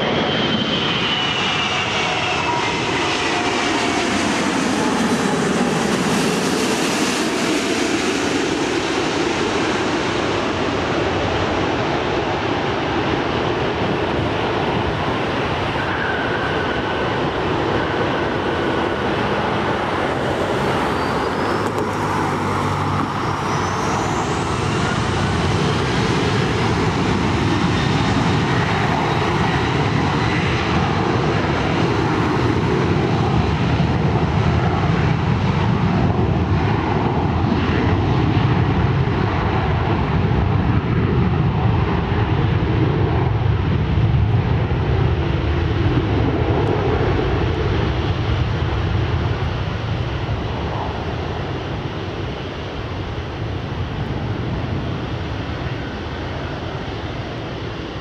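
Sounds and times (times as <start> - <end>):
jet engines rumbling: 0.0 - 58.0
road traffic: 14.6 - 30.1
thin rising whine: 15.8 - 25.8.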